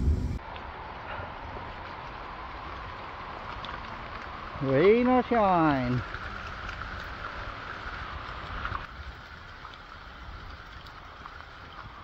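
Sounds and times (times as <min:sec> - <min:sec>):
low rumble: 0:00.0 - 0:00.9
rain on trees and pavement: 0:00.1 - 0:12.0.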